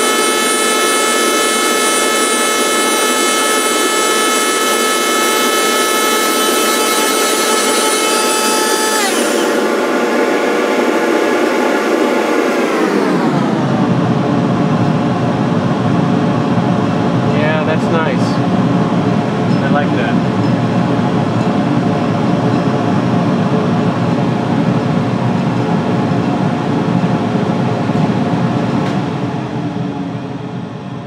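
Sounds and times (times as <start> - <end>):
rushing wood cutting noise: 0.0 - 14.0
lathe motor whine: 0.0 - 31.0.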